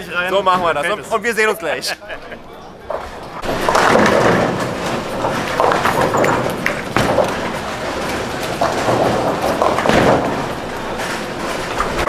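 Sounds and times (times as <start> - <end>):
bowling balls rolling: 2.7 - 12.0
pins clattering: 2.9 - 12.0.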